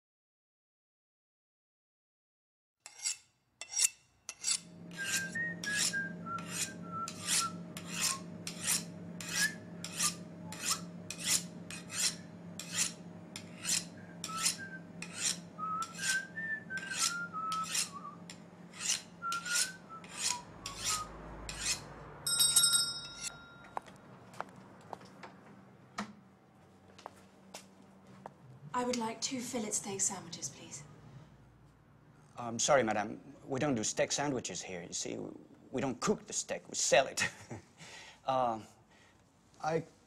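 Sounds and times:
rasping strokes: 0:02.8 - 0:21.9
steady low hum: 0:04.6 - 0:20.8.

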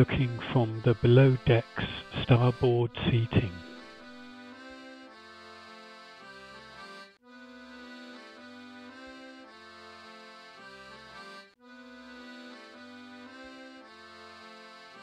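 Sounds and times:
quiet background music: 0:00.0 - 0:04.1.

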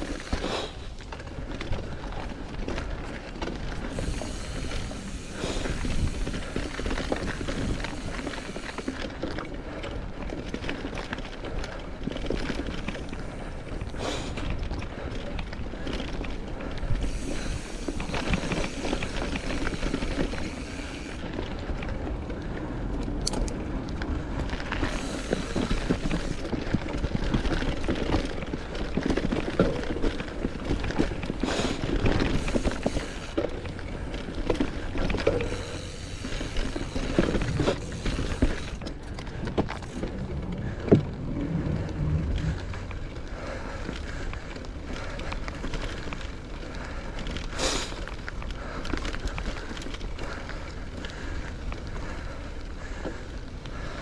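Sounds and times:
bike rattling over bumps: 0:00.0 - 0:54.0
bike tyres on dirt: 0:00.0 - 0:54.0
low rumble: 0:33.6 - 0:44.5.

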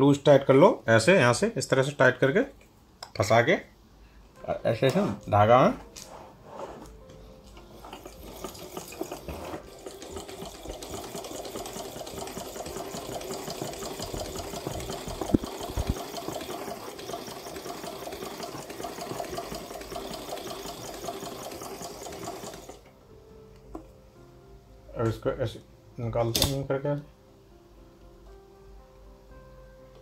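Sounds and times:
sewing machine rattling: 0:07.8 - 0:22.8.

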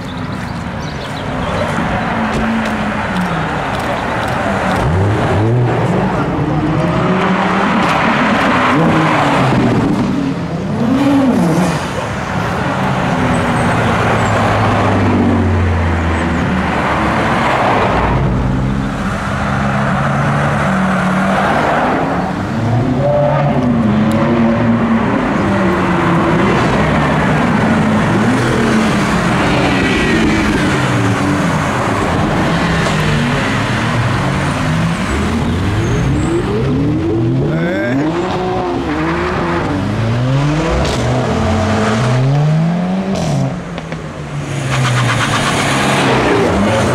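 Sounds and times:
cars revving past: 0:01.2 - 0:46.9.

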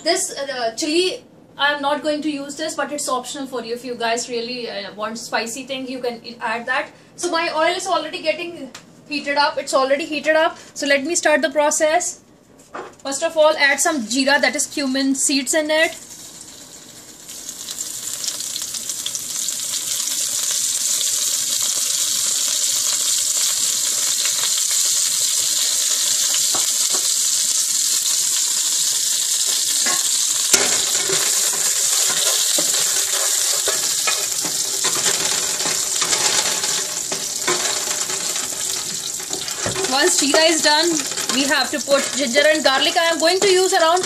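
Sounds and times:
seeds sizzling in hot oil: 0:16.0 - 0:44.0
wooden spatula stirring in pan: 0:29.5 - 0:44.0.

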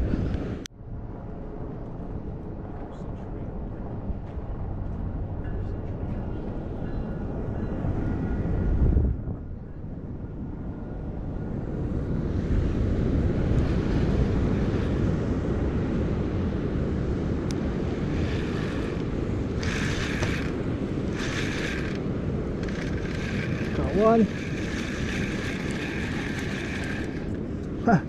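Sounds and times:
wind buffeting microphone: 0:00.0 - 0:28.0
surf rumbling: 0:12.3 - 0:28.0.

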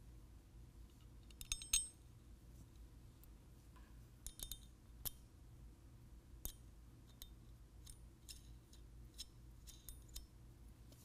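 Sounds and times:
low room hum: 0:00.0 - 0:11.0
metal hardware clicking on brackets: 0:01.2 - 0:02.1, 0:04.2 - 0:05.2, 0:06.4 - 0:10.4.

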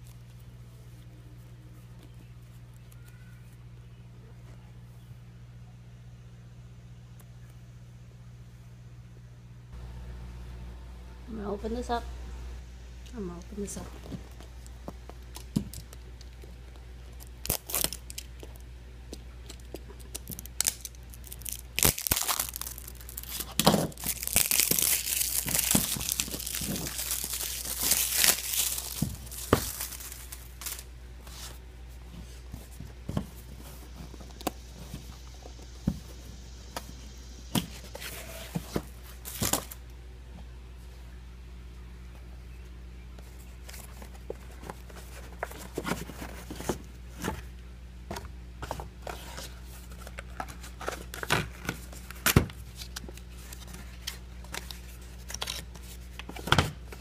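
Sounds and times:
packaging tearing and crinkling: 0:17.1 - 0:18.6, 0:19.5 - 0:30.9, 0:39.2 - 0:39.8.

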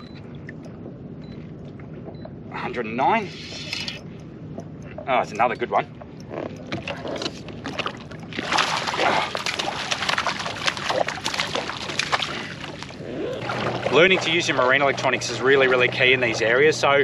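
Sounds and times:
fish thrashing and splashing: 0:06.0 - 0:16.4.

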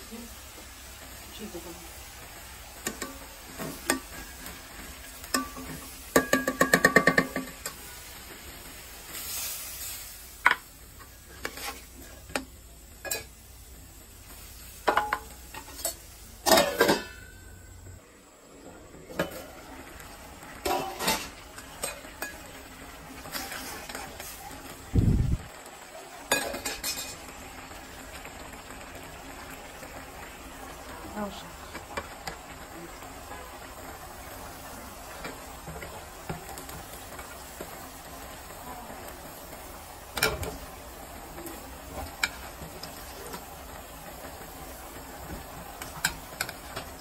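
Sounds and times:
food sizzling: 0:00.0 - 0:47.0
lid and pan clattering: 0:05.2 - 0:07.8, 0:14.8 - 0:17.4, 0:20.6 - 0:22.4, 0:26.3 - 0:27.2.

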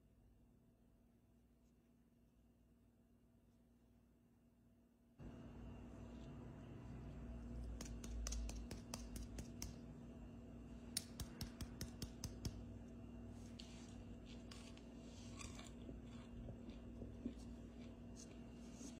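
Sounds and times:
faint steady hum: 0:00.0 - 0:18.9
fingers tapping crisp cookie: 0:07.5 - 0:09.9, 0:10.9 - 0:12.8.

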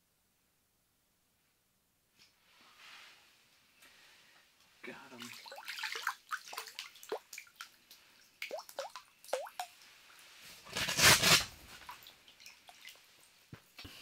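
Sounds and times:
water dripping and plopping: 0:05.2 - 0:09.9, 0:11.8 - 0:13.2.

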